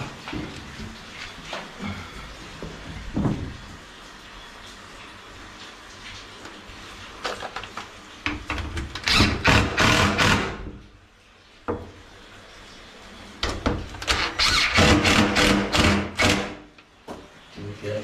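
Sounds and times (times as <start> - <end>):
impact driver driving screw: 14.4 - 16.6.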